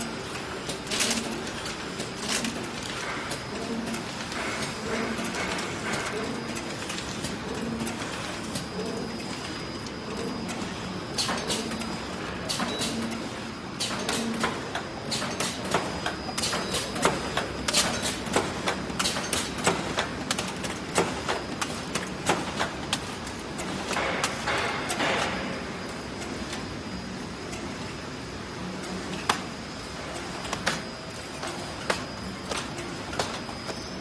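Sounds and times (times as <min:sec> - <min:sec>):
machine clacking: 0:00.0 - 0:26.6
machine mechanical hum: 0:00.0 - 0:34.0.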